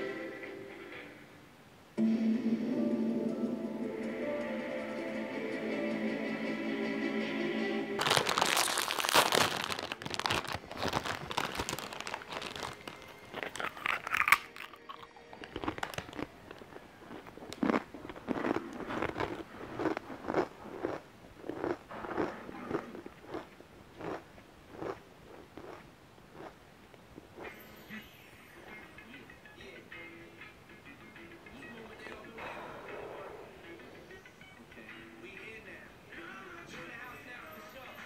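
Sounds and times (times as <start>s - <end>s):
plastic crisp packet rustling: 8.0s - 22.4s
crisps crunched and chewed: 8.0s - 26.6s.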